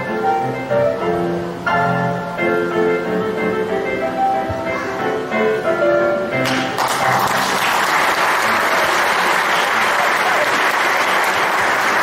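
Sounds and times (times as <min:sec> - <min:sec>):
music: 0:00.0 - 0:12.0
audience applauding: 0:06.4 - 0:12.0.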